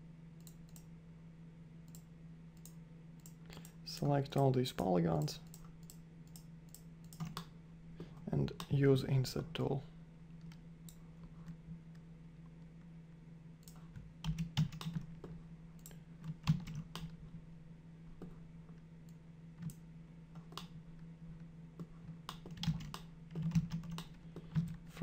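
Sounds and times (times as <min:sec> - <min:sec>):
faint low hum: 0:00.0 - 0:25.0
keyboard keystrokes: 0:13.6 - 0:15.1.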